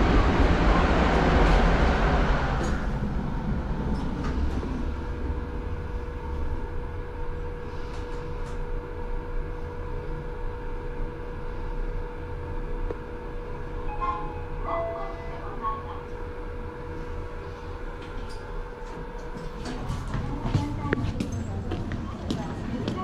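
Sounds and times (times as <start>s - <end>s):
elevator low rumble: 0.0s - 23.0s.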